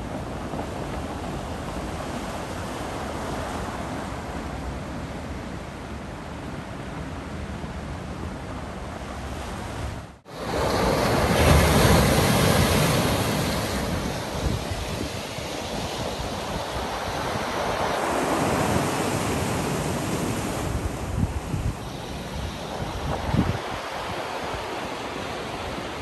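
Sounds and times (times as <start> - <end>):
wind buffeting microphone: 7.8 - 26.0
surf breaking on rocks: 10.3 - 21.2.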